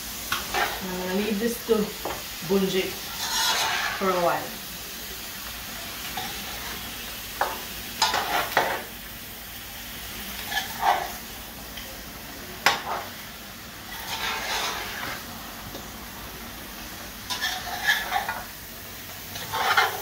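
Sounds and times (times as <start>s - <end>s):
curry sizzling: 0.0s - 20.0s
spoon scraping metal pan: 0.3s - 0.8s, 3.1s - 4.4s, 8.0s - 8.8s, 10.4s - 11.2s, 13.9s - 15.2s, 17.3s - 18.4s, 19.4s - 20.0s.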